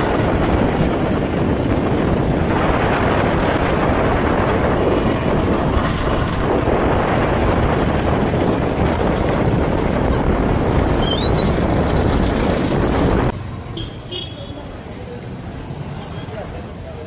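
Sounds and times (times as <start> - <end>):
wind buffeting microphone: 0.0 - 13.3.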